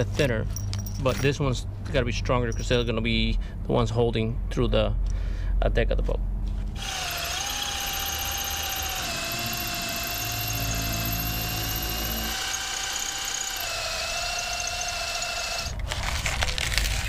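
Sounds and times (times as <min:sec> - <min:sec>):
cordless drill boring into metal: 0:06.8 - 0:16.0.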